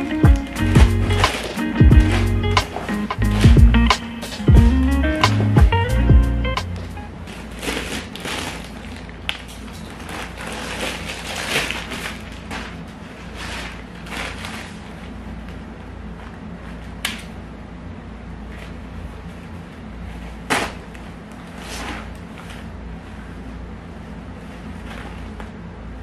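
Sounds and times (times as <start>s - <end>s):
plastic packaging crinkling: 0.0s - 4.5s, 6.8s - 15.2s.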